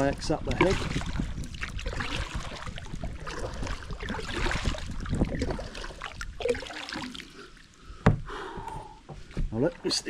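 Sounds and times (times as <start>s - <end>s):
paddle splashing in water: 0.0s - 7.4s.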